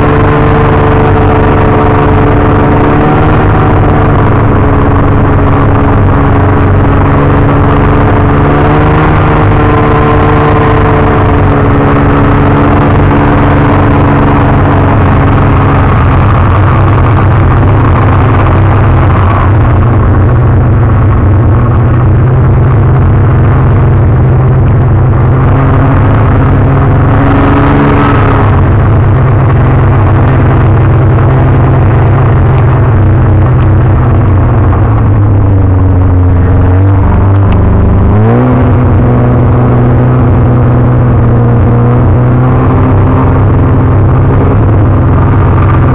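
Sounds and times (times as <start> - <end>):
snowmobile engine running: 0.0 - 45.9.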